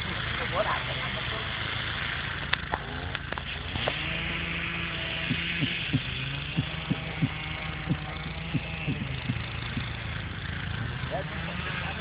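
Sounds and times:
tractor diesel engine running: 0.0s - 12.0s
sharp knocks: 5.3s - 9.9s.

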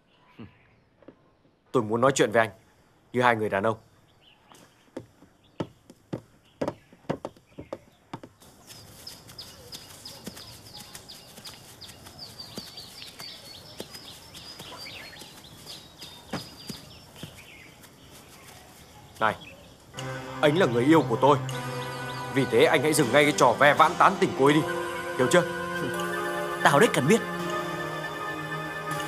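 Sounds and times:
birds chirping: 0.0s - 29.0s
footsteps: 4.6s - 20.2s.

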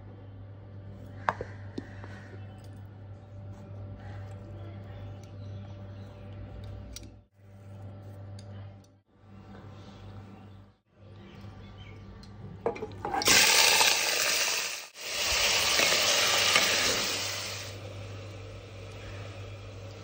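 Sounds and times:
chicken sizzling in hot oil: 13.2s - 17.8s.

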